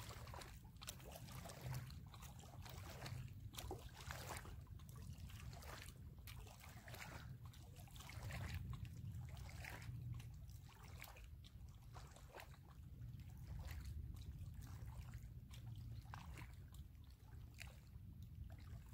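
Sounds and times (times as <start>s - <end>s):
small waves lapping on stones: 0.0s - 12.7s
wind rumble on microphone: 0.0s - 18.9s.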